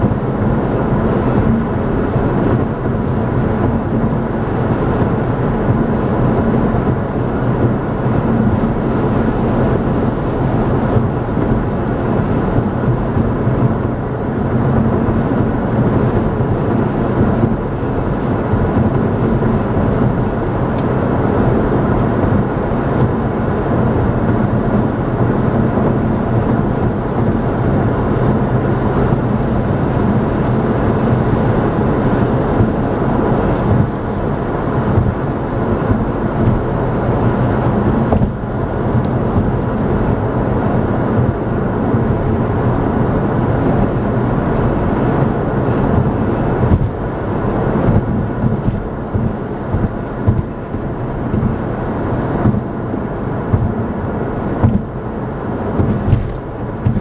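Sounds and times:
low engine hum: 0.0s - 57.0s
tyre roar on pavement: 0.0s - 57.0s.

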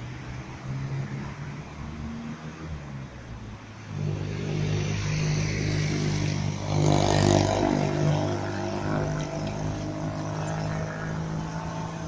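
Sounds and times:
tram drive hum: 3.4s - 12.0s
higher tram running noise: 3.8s - 12.0s.

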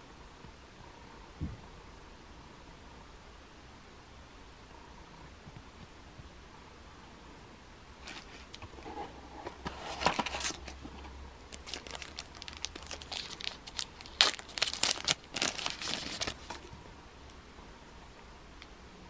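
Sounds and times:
plastic packaging crinkling: 9.5s - 16.7s.

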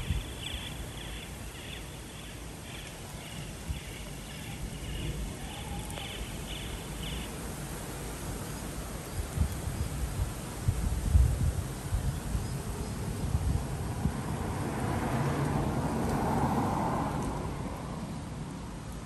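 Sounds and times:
wind buffeting microphone: 0.0s - 1.3s, 8.8s - 17.9s.

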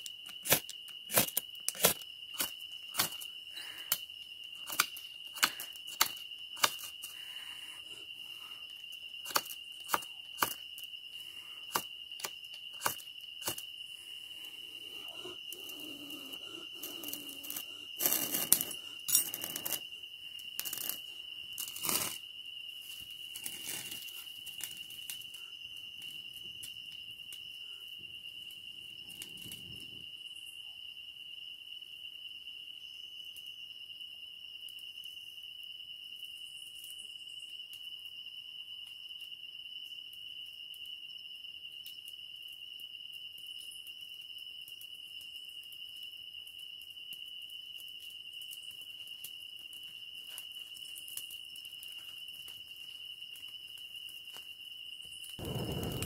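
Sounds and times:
fire crackling faintly: 0.0s - 30.8s, 41.6s - 56.0s
high-pitched insect drone: 0.0s - 31.0s
tinder crinkling and rustling: 11.7s - 26.8s, 55.1s - 56.0s.

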